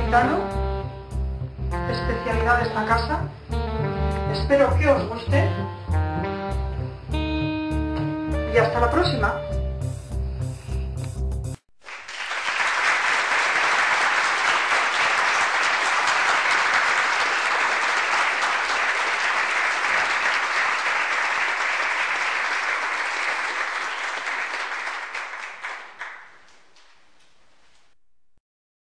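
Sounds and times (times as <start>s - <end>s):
crowd applause: 11.8s - 27.0s.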